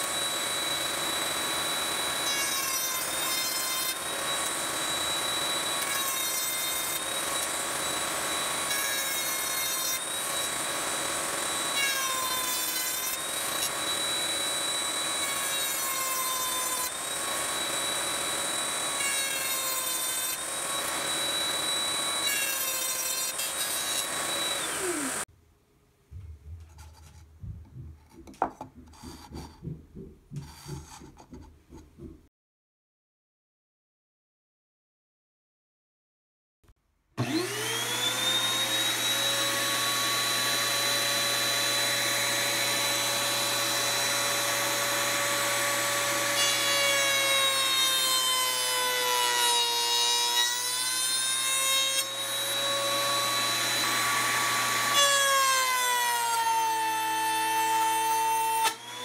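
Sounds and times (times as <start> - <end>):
router motor whining: 0.0 - 25.2, 37.2 - 59.0
router cutting wood: 0.0 - 25.3, 37.2 - 59.0.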